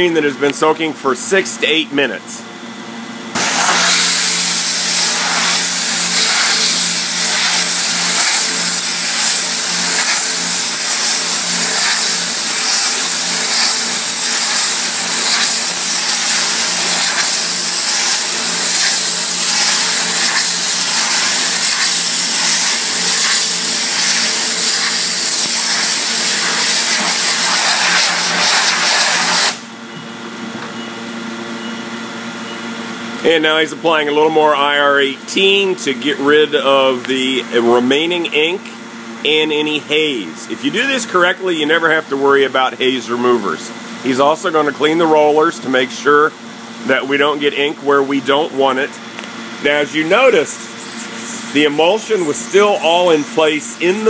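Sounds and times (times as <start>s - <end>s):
pump hum: 3.3s - 30.1s
high-pressure water spray hiss: 3.4s - 29.6s, 50.2s - 54.0s.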